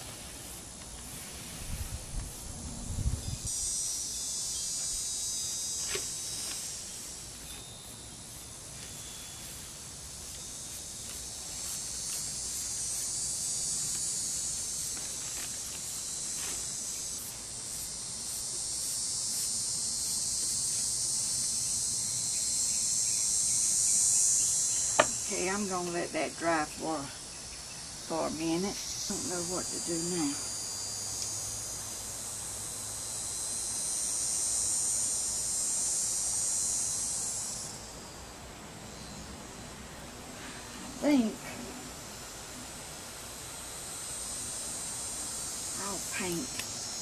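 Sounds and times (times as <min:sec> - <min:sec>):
insect chorus buzzing trill: 0:00.0 - 0:47.0.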